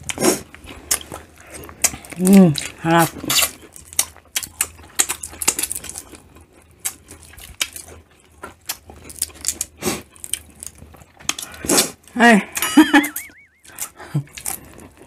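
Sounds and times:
eating sounds: 0:00.0 - 0:15.0
shrimp shells cracking: 0:01.9 - 0:11.6.

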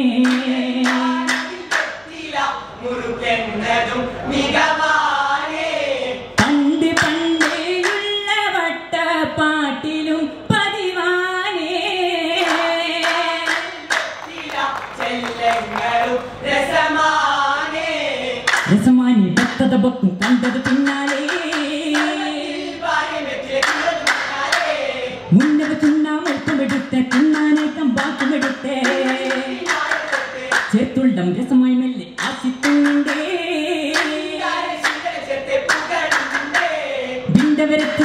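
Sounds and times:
rhythmic hand claps: 0:00.2 - 0:02.3, 0:06.4 - 0:08.2, 0:12.4 - 0:16.4, 0:18.4 - 0:22.6, 0:23.6 - 0:30.9, 0:32.2 - 0:38.0
men singing together: 0:12.4 - 0:18.5, 0:21.2 - 0:25.3, 0:28.3 - 0:30.7, 0:32.2 - 0:38.0.

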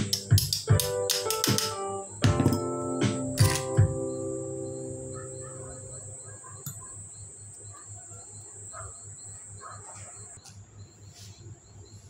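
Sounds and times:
piano notes: 0:00.0 - 0:06.6
steady high tone: 0:02.0 - 0:06.5.

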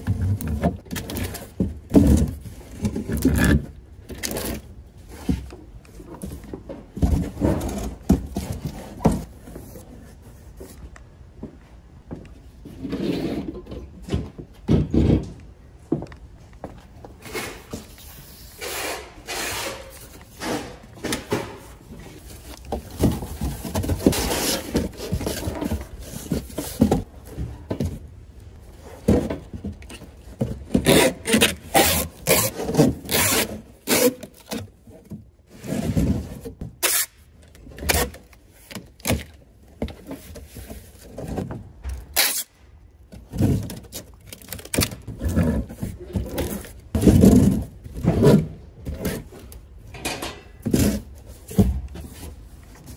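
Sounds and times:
packing tape pulled from tape gun: 0:36.8 - 0:37.3, 0:42.1 - 0:42.6.

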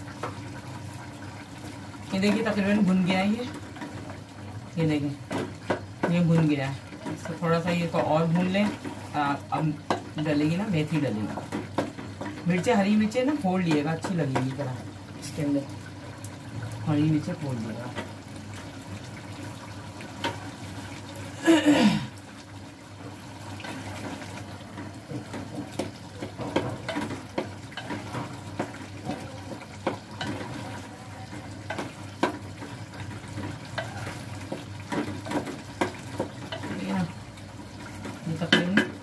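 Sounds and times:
steady frying hiss: 0:00.0 - 0:39.0.

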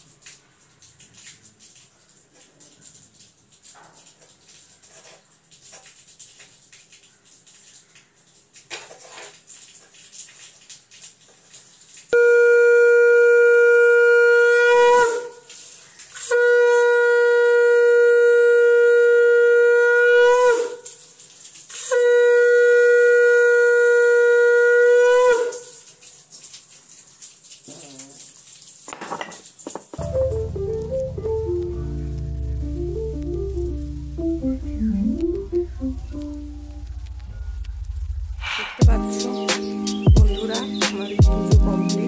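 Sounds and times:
conch shell blasts: 0:12.2 - 0:15.3.

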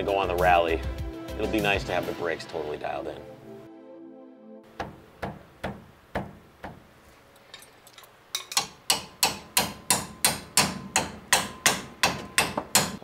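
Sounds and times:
hammer striking steel punch: 0:08.5 - 0:13.0.

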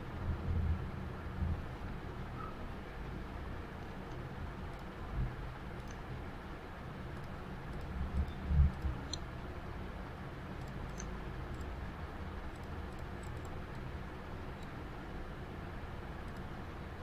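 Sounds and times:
low background hum: 0:00.0 - 0:17.0
computer mouse clicks: 0:05.8 - 0:06.0, 0:07.1 - 0:09.3, 0:10.6 - 0:11.8, 0:12.5 - 0:13.9, 0:14.5 - 0:14.8, 0:16.2 - 0:16.5.

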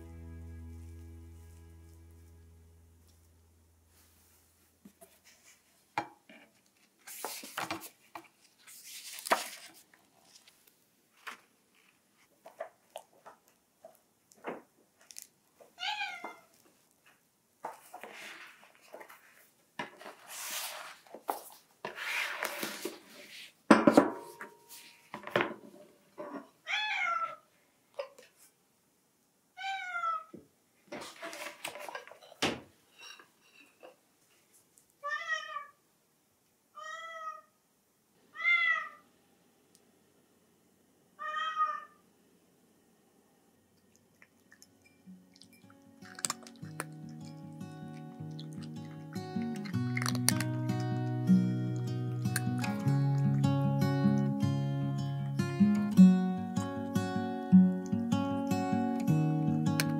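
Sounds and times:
book pages rustling: 0:06.5 - 0:13.2, 0:17.0 - 0:23.6, 0:31.0 - 0:32.3
cat meowing: 0:15.8 - 0:16.5, 0:26.7 - 0:27.4, 0:29.6 - 0:30.3, 0:35.0 - 0:35.8, 0:36.8 - 0:37.5, 0:38.3 - 0:39.0, 0:41.2 - 0:42.0.

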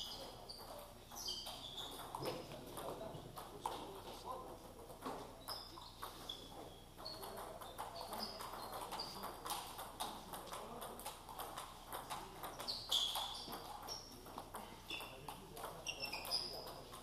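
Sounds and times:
short high squeaks: 0:00.0 - 0:02.2, 0:12.7 - 0:14.1, 0:15.8 - 0:16.7
table tennis balls clicking: 0:00.0 - 0:17.0.

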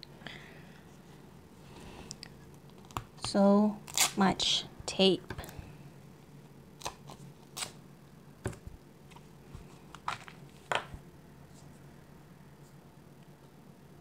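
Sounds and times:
tape peeling: 0:03.8 - 0:04.2, 0:06.8 - 0:07.8.

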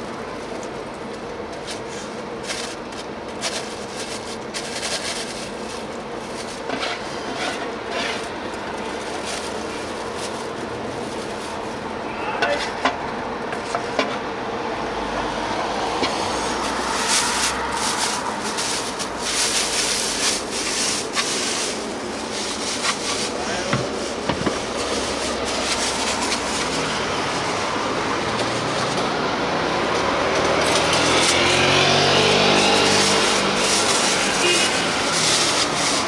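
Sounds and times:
street traffic: 0:00.0 - 0:36.0
vehicle engine accelerating: 0:25.0 - 0:36.0.

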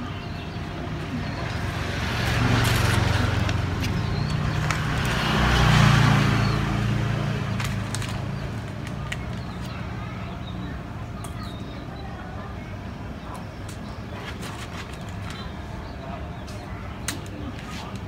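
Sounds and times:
vehicle engine humming: 0:00.0 - 0:11.2.

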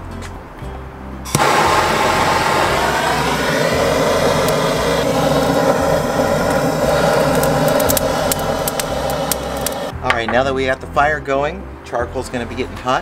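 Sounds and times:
propane torch hissing: 0:01.3 - 0:09.9.

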